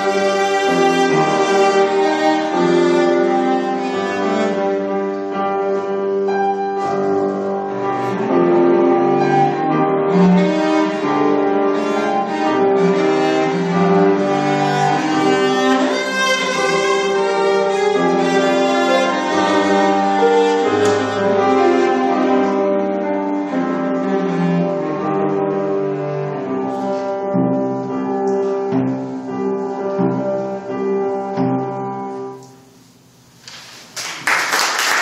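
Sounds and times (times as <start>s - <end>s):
cello playing: 0.0s - 32.4s
piano accompaniment: 0.0s - 35.0s
audience applauding: 33.6s - 35.0s.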